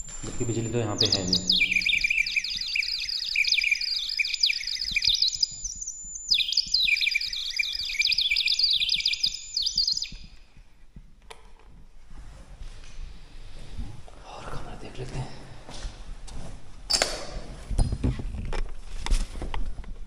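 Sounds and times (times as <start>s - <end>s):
rapid high-pitched chirping: 0.0s - 10.4s.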